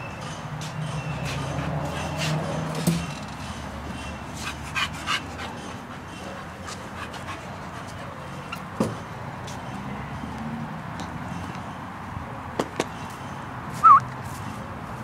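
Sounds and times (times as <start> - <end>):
dog making short sounds: 13.8 - 14.0.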